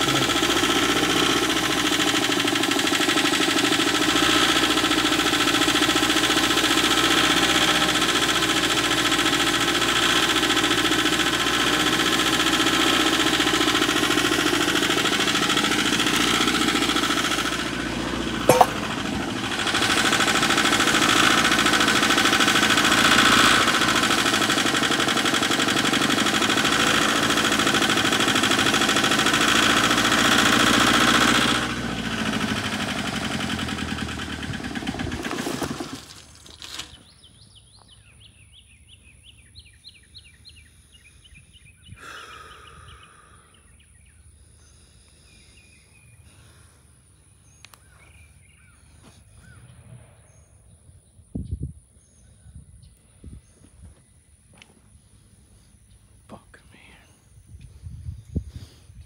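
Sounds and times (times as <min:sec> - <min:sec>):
diesel engine racing: 0:00.0 - 0:37.0
birds singing: 0:36.7 - 0:59.0.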